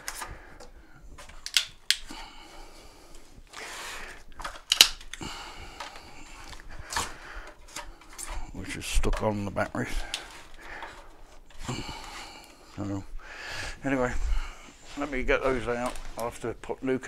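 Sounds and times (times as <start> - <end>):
plastic blocks clicking and knocking: 0.0 - 2.2, 4.2 - 11.7.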